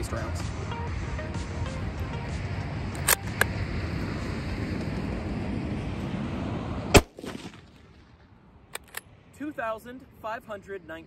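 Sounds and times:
steady rushing noise: 0:00.0 - 0:11.0
rifle shot: 0:06.9 - 0:08.2.

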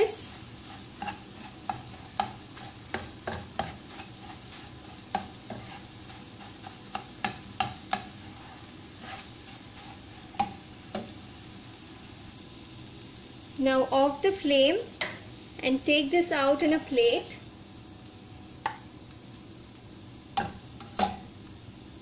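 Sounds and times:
oil sizzling: 0:00.0 - 0:22.0
metal spoon tapping a pan: 0:01.0 - 0:04.1, 0:05.1 - 0:05.7, 0:06.6 - 0:08.2, 0:10.3 - 0:11.1, 0:18.6 - 0:18.8, 0:20.4 - 0:21.3.

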